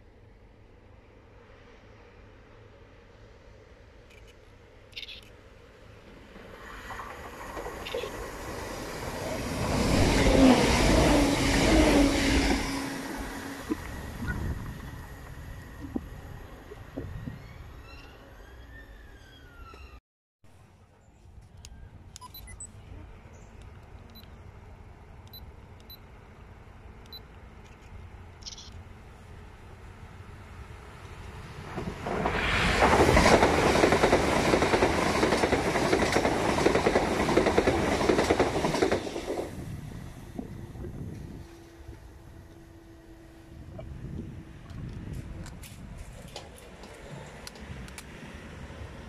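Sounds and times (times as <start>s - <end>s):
train passing at speed: 0.0s - 19.8s, 23.7s - 49.0s
wind buffeting microphone: 13.6s - 17.7s, 31.6s - 42.4s, 43.5s - 46.5s.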